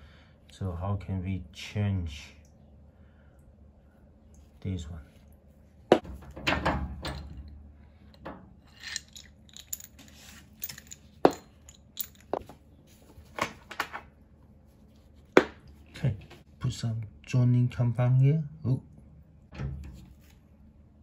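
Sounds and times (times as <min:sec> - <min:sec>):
metallic clinks and knocks: 0:08.7 - 0:12.6.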